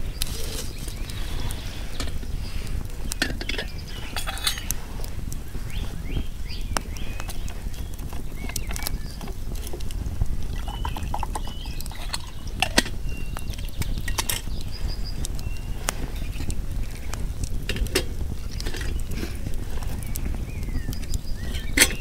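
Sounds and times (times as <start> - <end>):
steady low rumble: 0.0 - 22.0
wood campfire crackling: 0.0 - 22.0
metal cook pot lid clinking: 3.2 - 4.7.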